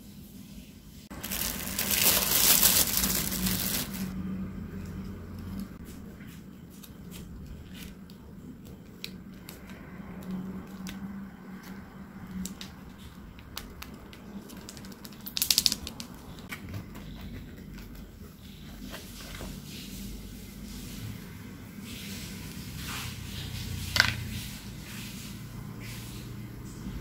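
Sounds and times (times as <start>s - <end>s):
paper box rustling: 1.1s - 4.2s
plastic sachet crinkling: 1.1s - 4.2s, 8.9s - 16.4s.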